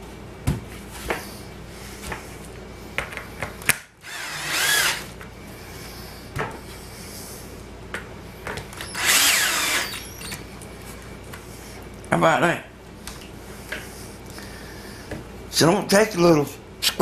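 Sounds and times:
cordless drill driving screws: 4.0s - 5.1s, 8.8s - 10.4s.

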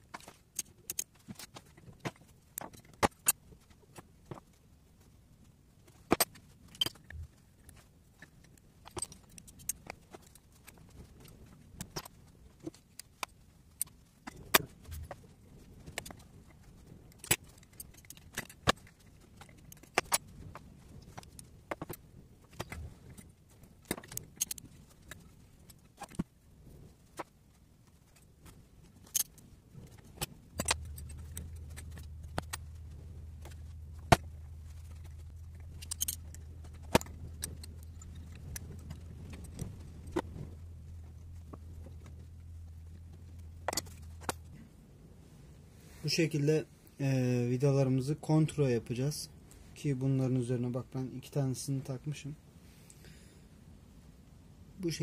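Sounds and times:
steady low hum: 0.0s - 55.0s
metal tools clinking: 30.0s - 40.2s.

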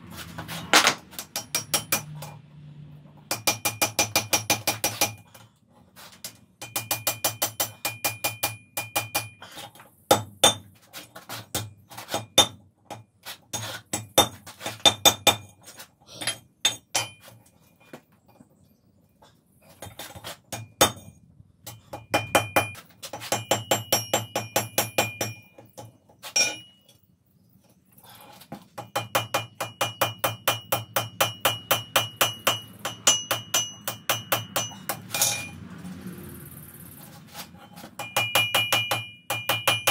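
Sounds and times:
hammer striking iron on anvil: 0.7s - 2.4s, 3.3s - 5.2s, 6.6s - 9.4s, 10.1s - 10.7s, 11.5s - 13.1s, 13.9s - 15.5s, 16.6s - 17.2s, 20.5s - 26.8s, 28.8s - 35.6s, 37.7s - 39.9s.

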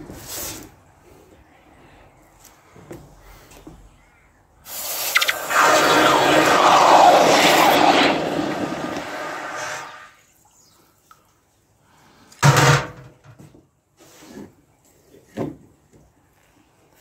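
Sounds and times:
hot metal sizzling in water: 4.8s - 10.1s
loud clunk: 12.4s - 13.2s.

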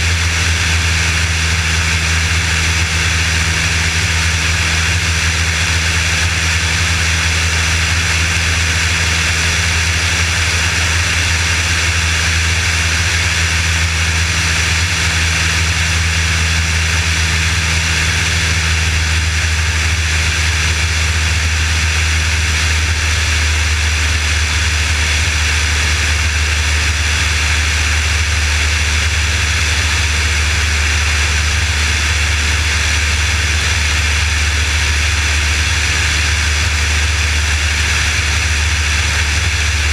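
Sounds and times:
aircraft engine and propeller: 0.0s - 39.9s.

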